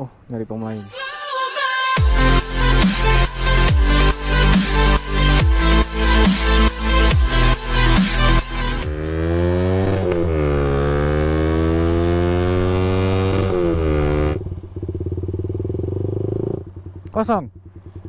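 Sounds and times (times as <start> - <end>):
electronic dance music: 0.8 - 9.0
motorcycle engine running: 8.8 - 18.0.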